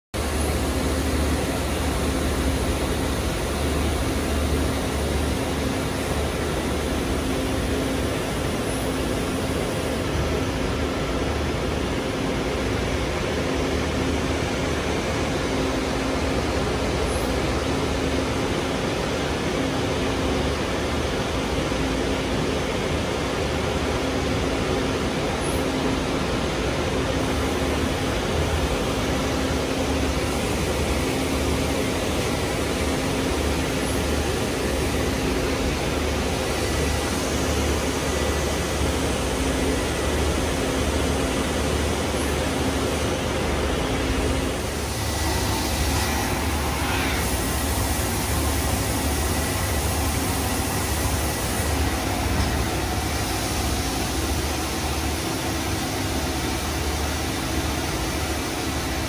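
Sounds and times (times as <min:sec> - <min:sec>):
coolant spraying hiss: 0:29.6 - 0:59.0.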